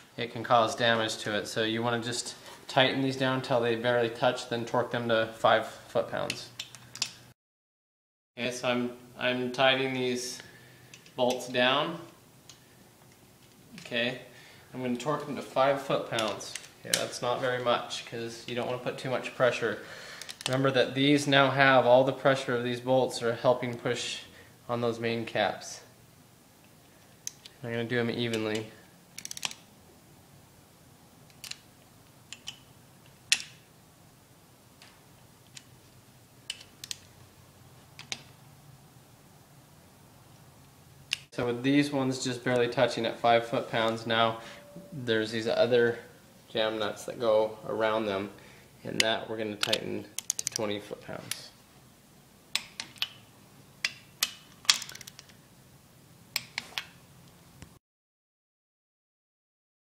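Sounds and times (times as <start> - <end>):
torque wrench clicks: 49.6 - 50.6.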